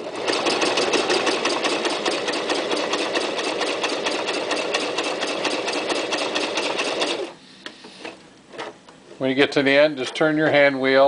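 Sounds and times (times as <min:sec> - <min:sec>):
sewing machine stitching: 0:00.0 - 0:08.7.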